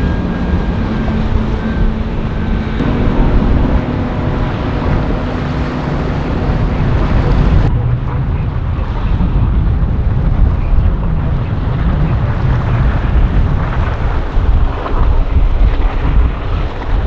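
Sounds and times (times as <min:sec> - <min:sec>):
motorboat engines running: 0:00.0 - 0:09.0
surf: 0:00.0 - 0:17.0
wind buffeting microphone: 0:00.0 - 0:17.0.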